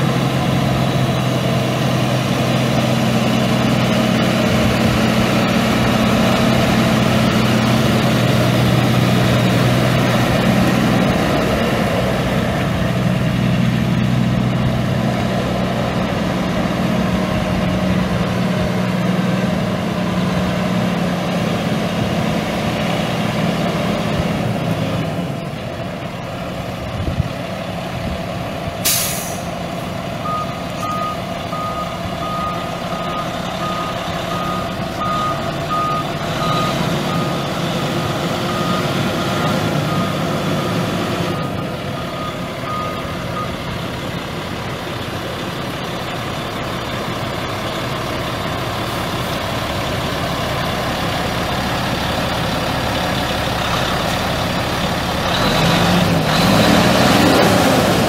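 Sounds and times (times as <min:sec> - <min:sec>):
diesel truck engine running: 0:00.0 - 0:58.0
air hiss: 0:28.8 - 0:29.5
backup alarm beeping: 0:30.2 - 0:37.5, 0:41.4 - 0:43.6.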